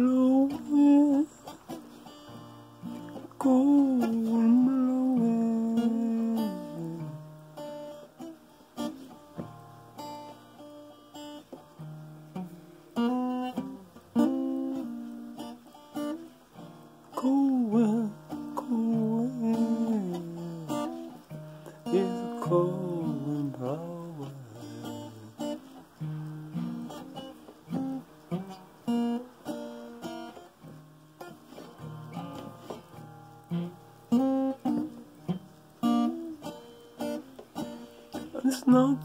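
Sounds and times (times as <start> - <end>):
man singing wordlessly: 0.0 - 1.8, 2.8 - 7.3, 17.1 - 25.8, 38.2 - 39.0
acoustic guitar picked and strummed: 0.0 - 39.0.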